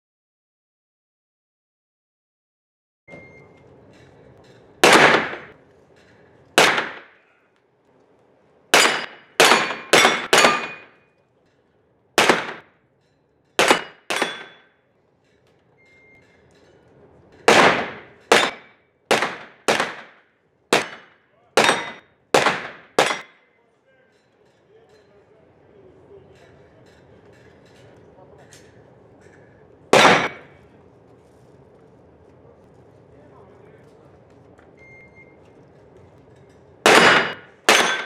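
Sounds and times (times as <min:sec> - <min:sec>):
gunshots echoing indoors: 0:04.8 - 0:05.6, 0:06.6 - 0:07.4, 0:08.7 - 0:11.0, 0:12.2 - 0:12.8, 0:13.6 - 0:14.7, 0:17.4 - 0:23.4, 0:29.9 - 0:30.6, 0:36.8 - 0:38.0.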